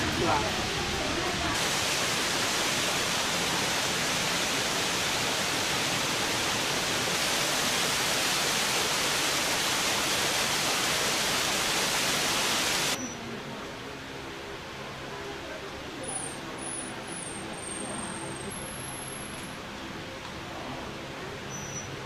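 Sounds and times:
steady rushing hiss: 0.0s - 13.0s.

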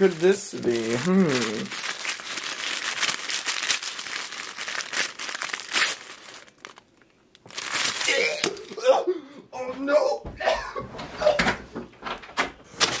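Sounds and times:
tissue paper crinkling and tearing: 0.0s - 8.8s.

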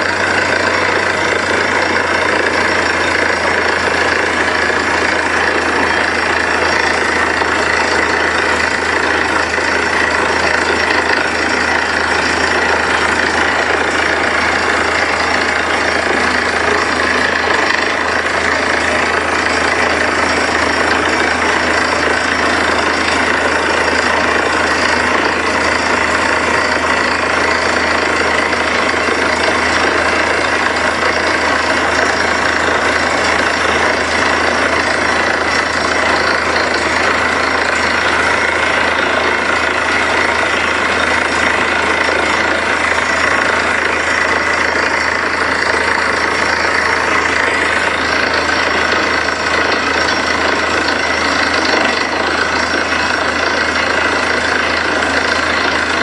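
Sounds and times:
drilling rig engine under load: 0.0s - 56.0s.

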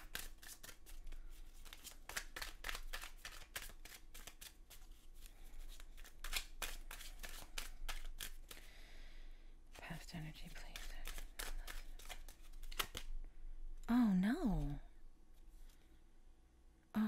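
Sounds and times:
cards being shuffled: 0.0s - 8.7s, 10.4s - 13.2s.

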